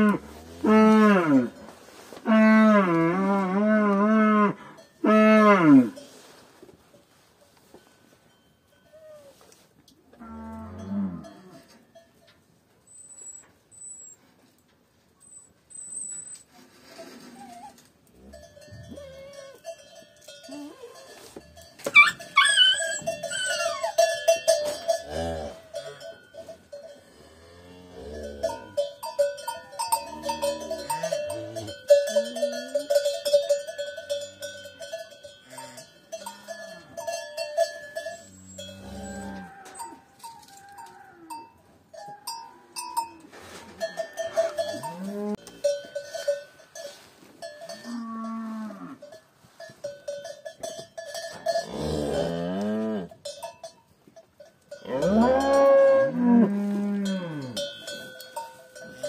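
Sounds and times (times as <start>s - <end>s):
collar bell jangling: 17.4s - 27.1s, 28.2s - 48.4s, 49.0s - 52.3s, 53.1s - 55.8s, 57.0s - 59.0s.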